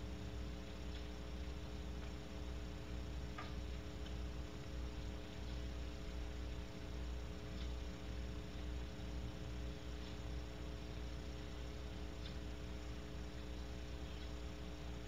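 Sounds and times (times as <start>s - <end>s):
electrical hum and hiss: 0.0s - 15.0s
faint ticks: 0.2s - 15.0s.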